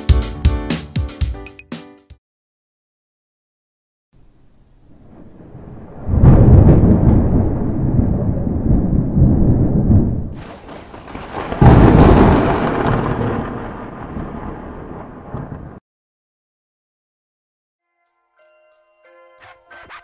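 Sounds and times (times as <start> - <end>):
thunder rumbling: 4.2 - 15.8
sharp thunder crack: 4.9 - 15.8.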